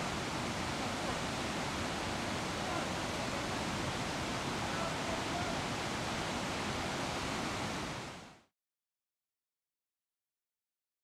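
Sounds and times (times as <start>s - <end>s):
waterfall rushing: 0.0s - 8.4s.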